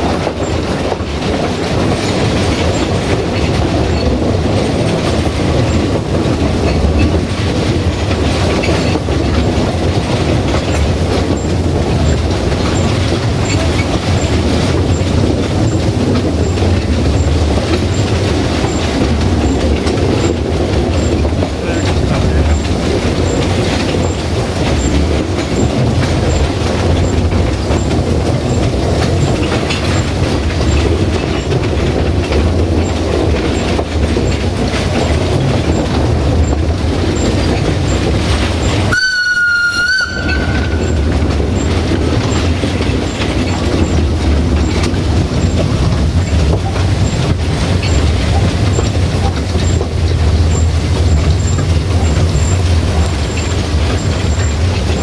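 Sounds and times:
train rumbling on track: 0.0 - 55.0
steam whistle: 38.9 - 41.1.

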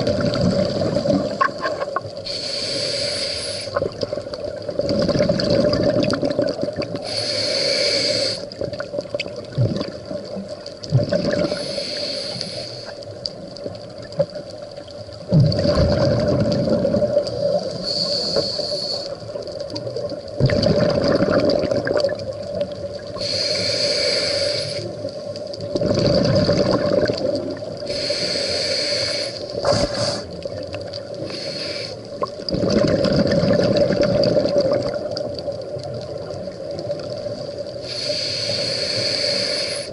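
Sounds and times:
exhaled bubbles rushing: 0.0 - 1.7, 3.8 - 7.0, 8.6 - 11.6, 15.3 - 17.8, 19.8 - 23.2, 25.6 - 27.8, 32.2 - 37.7
scuba regulator breathing hiss: 2.2 - 3.8, 7.0 - 8.6, 11.5 - 13.1, 17.4 - 19.2, 23.1 - 25.1, 27.8 - 30.4, 31.2 - 32.2, 37.8 - 39.9.

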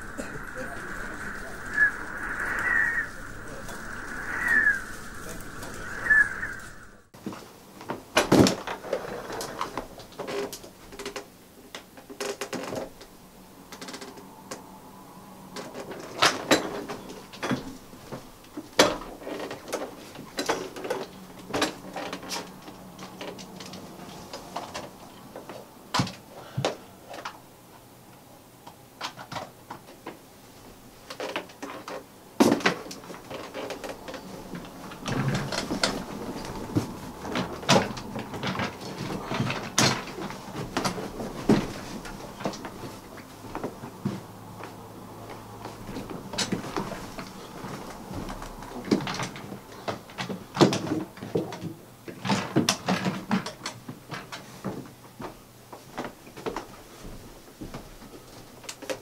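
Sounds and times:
faint low hum: 0.0 - 7.1.

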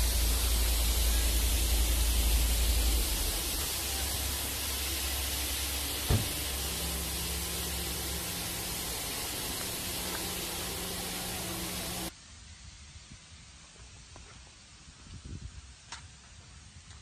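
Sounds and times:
fogger nozzles hissing mist: 0.0 - 12.1
low rumble: 0.0 - 12.1
sharp knock: 6.1 - 6.4.

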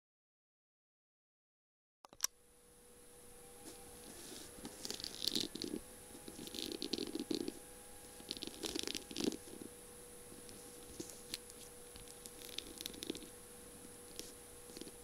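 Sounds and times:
faint steady hum: 2.1 - 15.0
fingernails tapping on beads: 4.8 - 7.6, 10.4 - 13.3.

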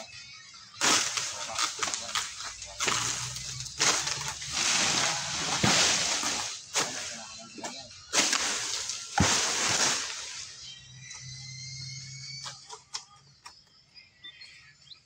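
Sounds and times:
pole sickle rustling and scraping: 0.8 - 10.6.

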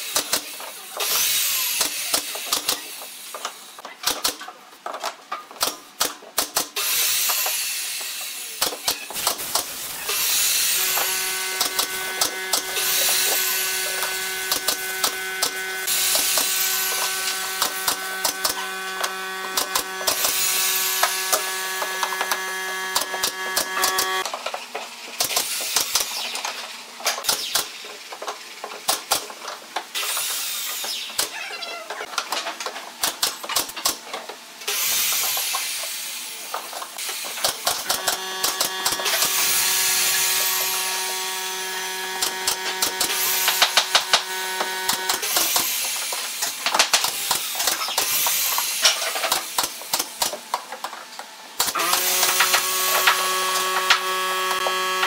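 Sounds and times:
power drill driving screws: 9.2 - 24.2, 37.0 - 45.9, 51.6 - 55.0.

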